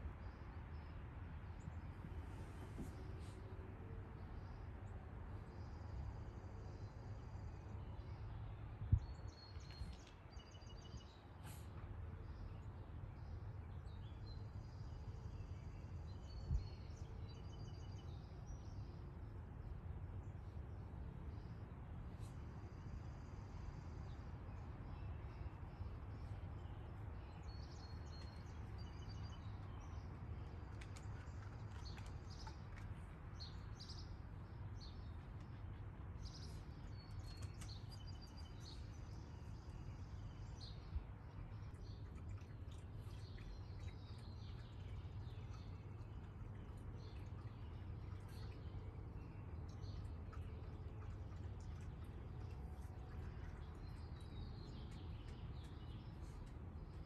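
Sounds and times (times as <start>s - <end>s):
songbird chirps: 0.0s - 57.0s
steady low rumble: 18.6s - 57.0s.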